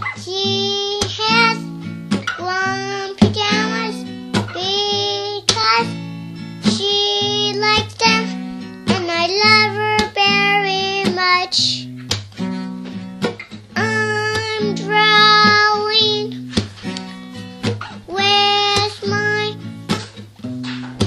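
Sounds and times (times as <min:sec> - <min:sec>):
girl singing: 0:00.0 - 0:11.9, 0:13.7 - 0:16.6, 0:18.0 - 0:19.7
strummed guitar: 0:00.0 - 0:21.0.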